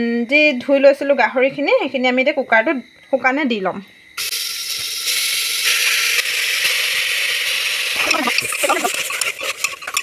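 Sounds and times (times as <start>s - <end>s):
meat sizzling in a pot: 4.2s - 10.0s.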